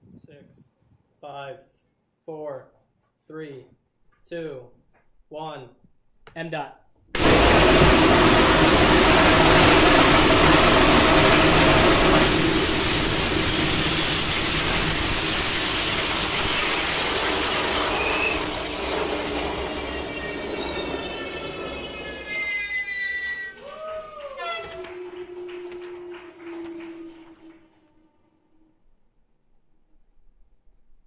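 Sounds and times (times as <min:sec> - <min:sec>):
rocket engine roaring: 0:07.2 - 0:27.8
high whistle gliding downward: 0:07.2 - 0:29.0.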